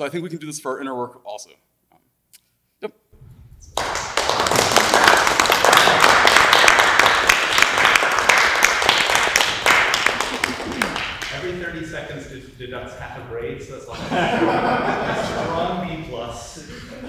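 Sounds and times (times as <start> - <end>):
audience applauding: 3.6 - 11.7.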